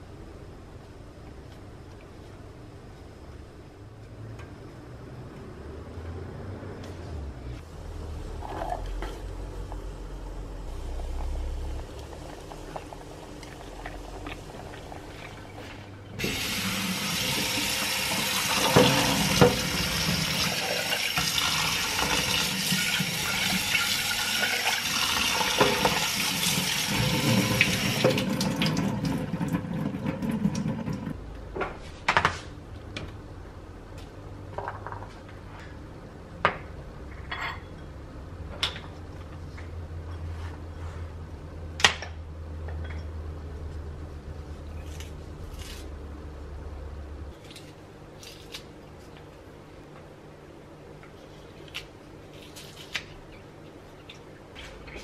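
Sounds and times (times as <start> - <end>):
tap water running into a sink: 16.2 - 31.1.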